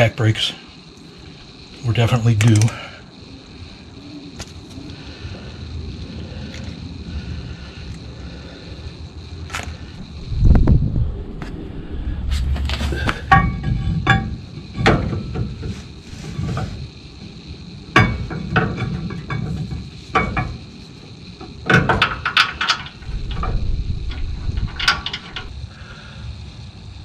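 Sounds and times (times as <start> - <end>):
metal clinks and knocks: 13.2 - 15.7, 17.9 - 20.7, 21.4 - 25.6.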